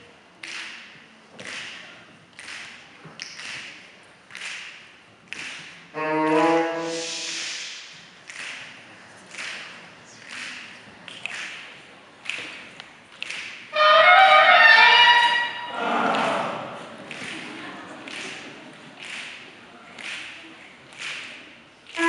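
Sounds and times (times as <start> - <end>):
saxophone ensemble playing: 6.0 - 7.2, 13.7 - 16.2.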